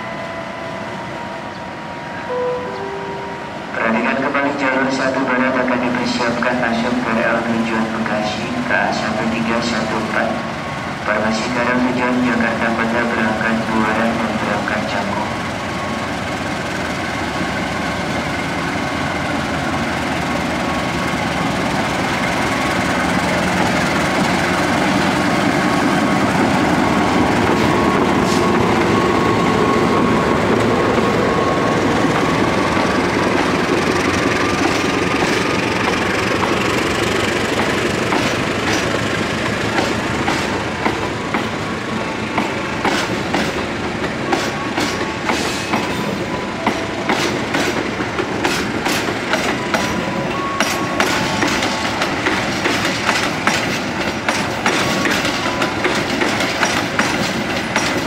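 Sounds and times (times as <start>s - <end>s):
diesel locomotive passing: 0.0s - 58.0s
wheels clicking over rail joints: 51.0s - 58.0s.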